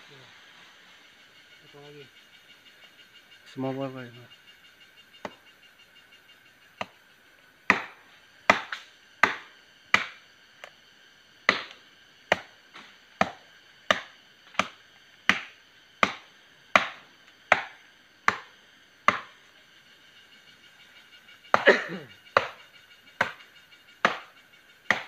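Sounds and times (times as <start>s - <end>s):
machete chopping into tree trunk: 7.7s - 10.2s, 11.5s - 16.2s, 16.8s - 18.5s, 19.1s - 19.3s, 22.4s - 22.6s, 24.0s - 24.3s.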